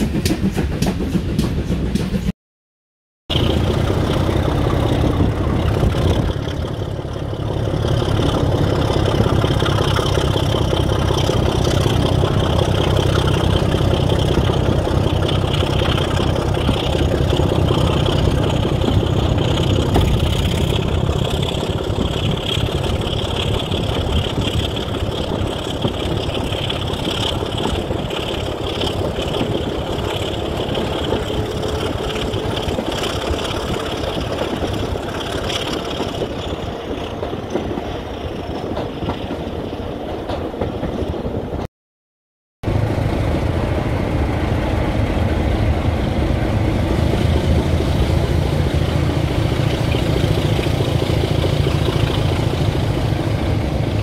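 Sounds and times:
diesel engine idling: 3.3 - 36.3, 42.7 - 54.0.

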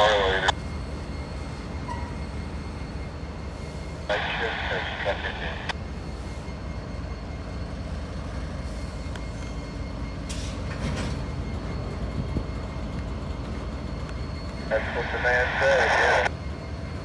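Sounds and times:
freight locomotives rumbling: 0.0 - 17.0.

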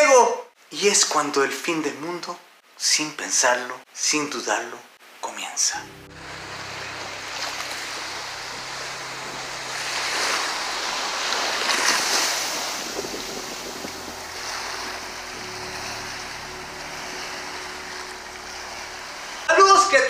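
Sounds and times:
ocean surf on sandy beach: 5.8 - 19.6.

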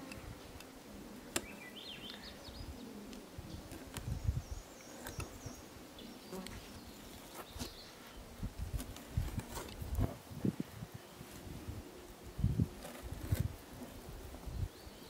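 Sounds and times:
insects buzzing: 0.0 - 15.0.

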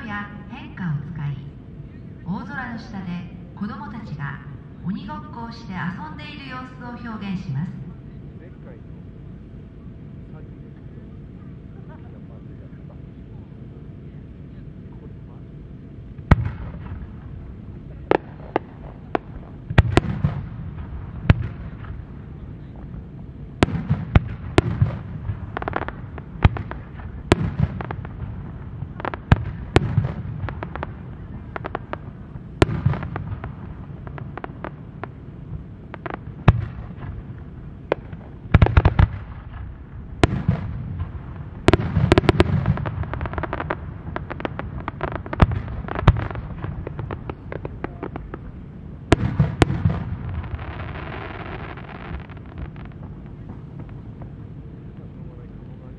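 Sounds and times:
low rumbling echo: 0.0 - 55.9.

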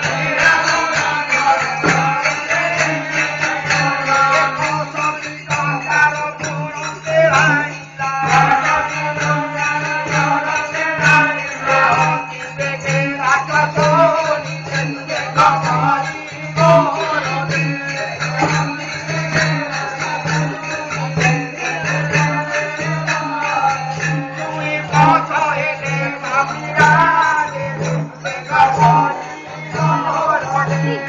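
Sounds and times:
jingling metal percussion: 0.0 - 31.0
person singing: 0.0 - 31.0
rhythmic percussion: 0.0 - 31.0.

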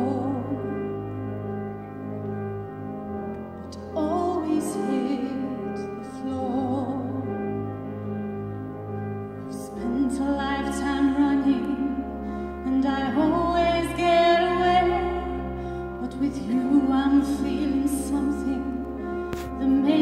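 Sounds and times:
woman singing a ballad: 0.0 - 1.4, 3.7 - 8.4, 9.4 - 20.0.

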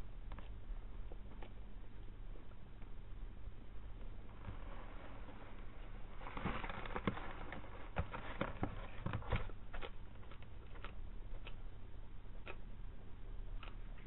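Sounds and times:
steady low hum: 0.0 - 14.0
lizard scuffling: 4.3 - 10.9.

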